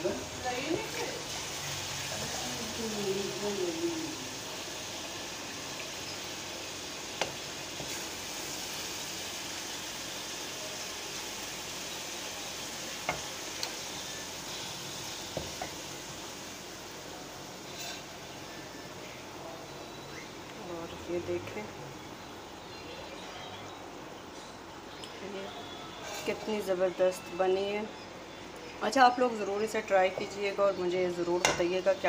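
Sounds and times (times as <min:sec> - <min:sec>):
curry sizzling in pan: 0:00.0 - 0:23.1.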